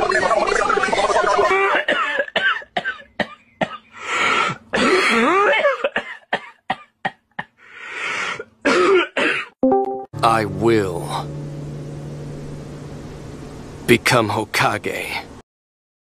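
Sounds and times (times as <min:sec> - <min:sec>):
person coughing: 0:01.7 - 0:03.8, 0:04.7 - 0:07.6, 0:08.6 - 0:09.6.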